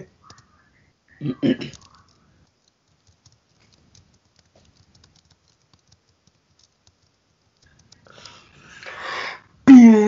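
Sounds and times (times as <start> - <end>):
keyboard typing: 0.0 - 0.6, 1.6 - 8.9.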